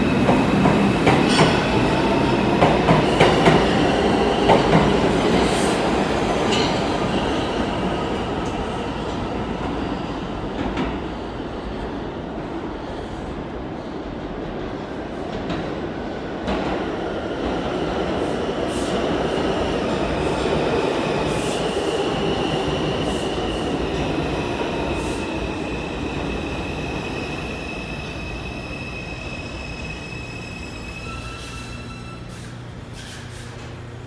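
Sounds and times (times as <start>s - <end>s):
subway train wheels rumbling: 0.0s - 34.0s
high wheel squeal: 28.0s - 33.3s.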